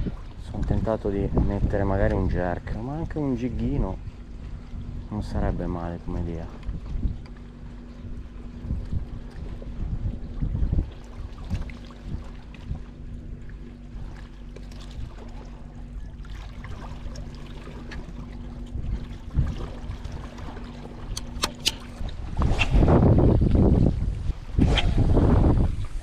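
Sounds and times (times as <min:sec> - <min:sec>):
sea water against rocks: 0:00.0 - 0:26.0
steady low hum: 0:00.0 - 0:26.0
wind: 0:00.0 - 0:26.0
sharp clicks: 0:21.1 - 0:21.9
rod swishing in a cast: 0:21.2 - 0:23.2, 0:24.6 - 0:25.5.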